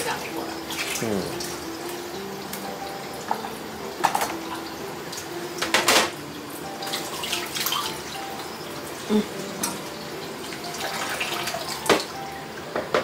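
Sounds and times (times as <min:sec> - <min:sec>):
tableware clinking: 0:03.3 - 0:04.4, 0:05.6 - 0:06.2.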